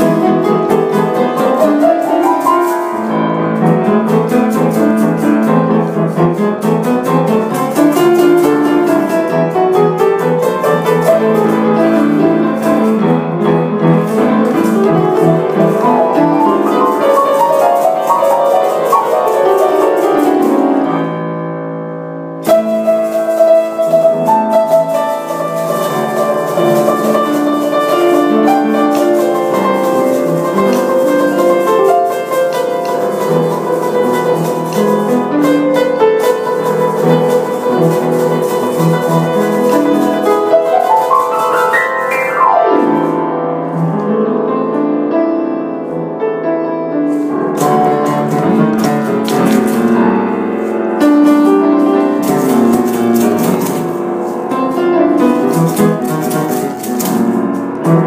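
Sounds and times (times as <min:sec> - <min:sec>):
upright piano playing: 0:00.0 - 0:58.0.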